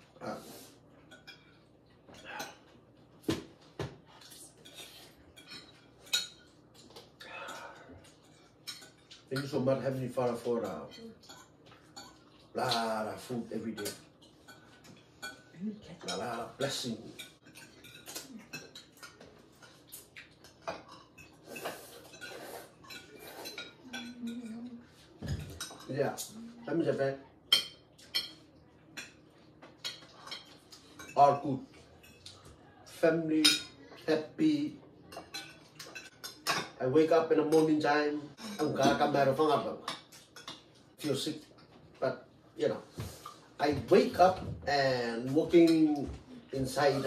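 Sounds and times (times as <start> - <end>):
forks scraping and tapping plates: 4.5 - 26.3, 27.5 - 32.6, 35.0 - 41.8.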